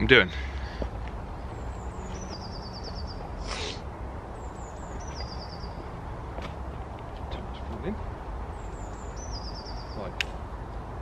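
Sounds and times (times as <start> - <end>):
songbird singing trill: 1.4 - 3.6, 4.3 - 6.1, 7.3 - 10.3.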